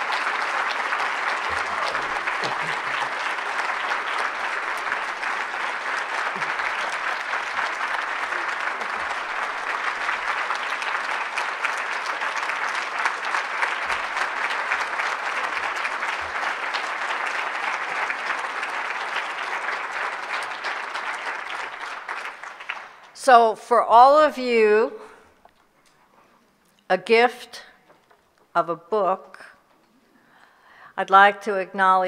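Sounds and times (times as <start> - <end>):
audience applauding: 0.0 - 23.2.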